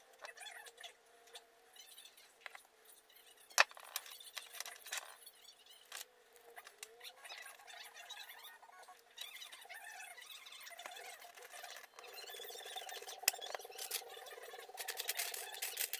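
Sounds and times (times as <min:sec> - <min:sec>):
screwdriver scraping: 0:12.8 - 0:15.9
small parts clicking on workbench: 0:12.8 - 0:15.9.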